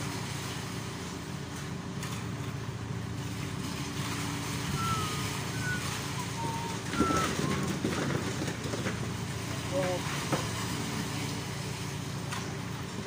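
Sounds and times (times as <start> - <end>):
diesel engine idling: 0.0 - 13.0
short high chirps: 4.7 - 7.6.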